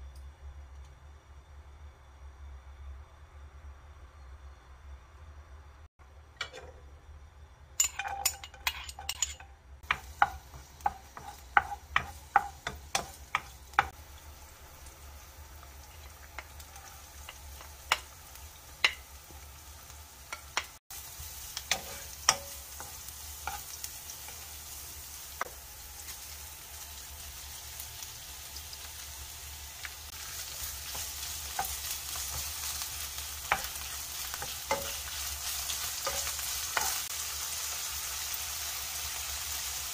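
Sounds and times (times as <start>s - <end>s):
spoon clinking on wok: 7.8s - 13.9s, 21.6s - 23.7s
wooden spatula stirring and tapping: 9.8s - 14.0s
vegetables sizzling in hot oil: 9.8s - 39.9s.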